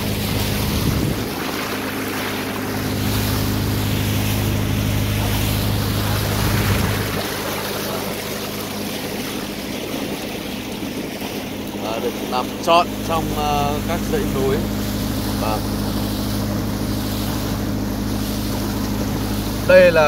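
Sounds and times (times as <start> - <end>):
wind on microphone: 0.0 - 12.3
boat engine humming: 0.0 - 20.0
water rushing along hull: 0.0 - 20.0.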